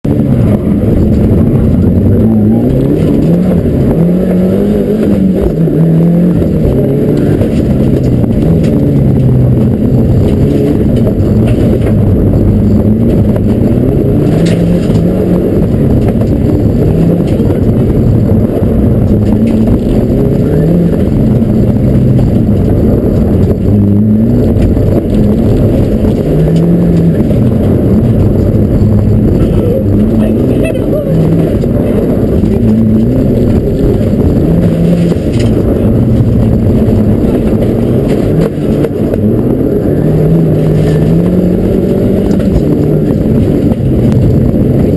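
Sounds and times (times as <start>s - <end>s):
rally car engine revving: 0.0s - 44.9s.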